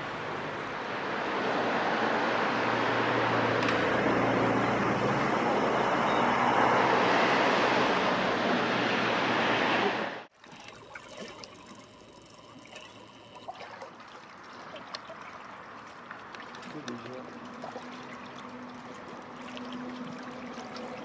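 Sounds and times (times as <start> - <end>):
water lapping in shallows: 9.8 - 21.0.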